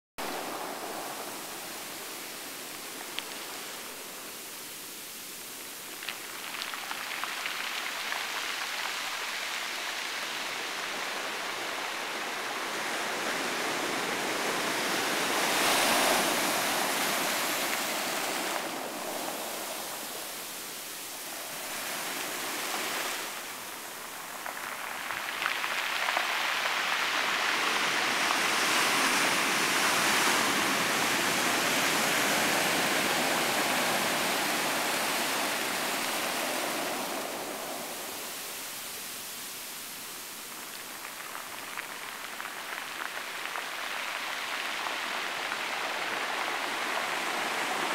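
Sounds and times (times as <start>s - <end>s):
surf washing over rocks: 0.2s - 47.9s.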